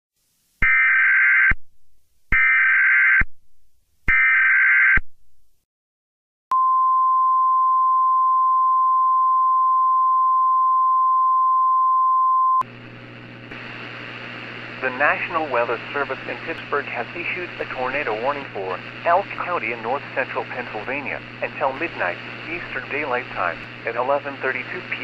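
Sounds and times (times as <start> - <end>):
faint hum and hiss: 12.6 - 25.0
steady warning tone: 14.8 - 25.0.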